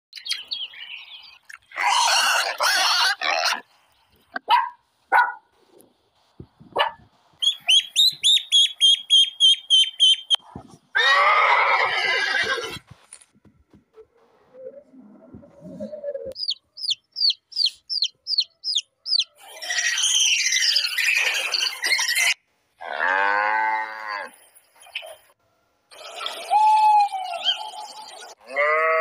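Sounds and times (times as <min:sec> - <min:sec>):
harsh animal calls: 0:01.7 - 0:03.7, 0:14.0 - 0:24.4, 0:25.9 - 0:26.9
ducklings peeping: 0:07.4 - 0:10.4, 0:15.7 - 0:19.4.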